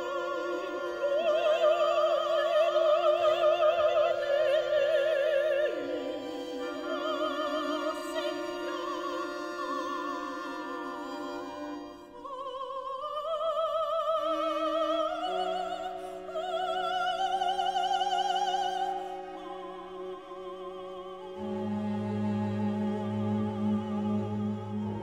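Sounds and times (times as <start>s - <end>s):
brass strings and organ ensemble: 0.0s - 2.6s, 5.2s - 12.2s, 18.8s - 25.0s
operatic singing: 0.0s - 25.0s
low sustained notes: 16.0s - 25.0s.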